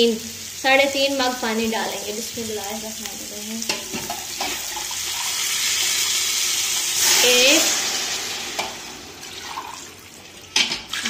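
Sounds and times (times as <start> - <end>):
hot oil sizzling: 0.0 - 11.0
water pouring into a pot: 4.1 - 11.0.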